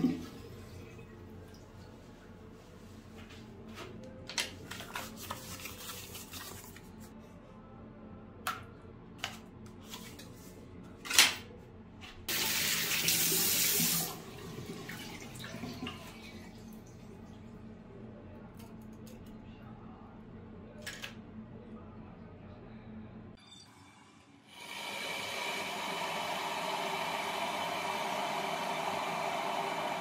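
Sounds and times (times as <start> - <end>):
tap running water: 12.3 - 16.8.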